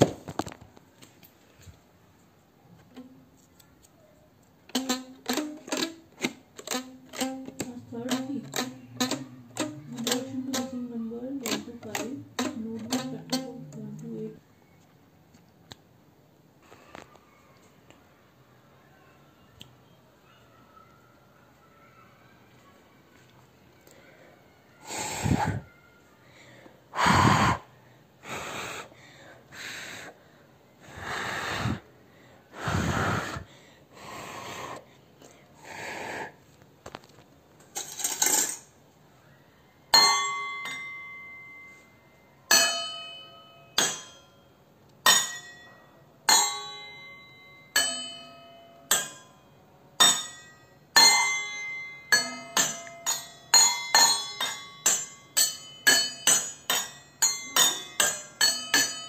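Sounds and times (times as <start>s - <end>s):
metal tumblers struck ringing: 42.5s - 44.5s, 45.1s - 59.0s.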